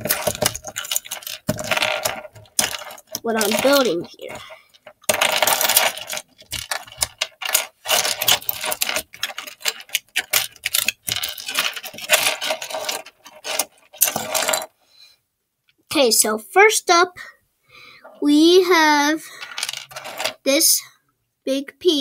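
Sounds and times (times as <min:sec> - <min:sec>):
plastic bricks clicking and clattering: 0:00.0 - 0:14.7, 0:19.4 - 0:20.4.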